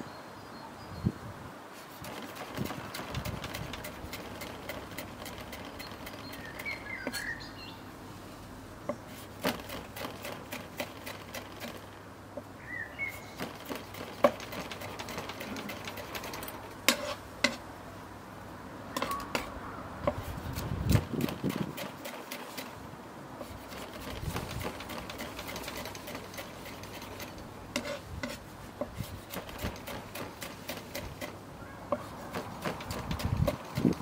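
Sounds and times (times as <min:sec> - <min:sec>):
bird chirping: 0:05.6 - 0:07.9, 0:12.4 - 0:14.1, 0:18.9 - 0:19.5.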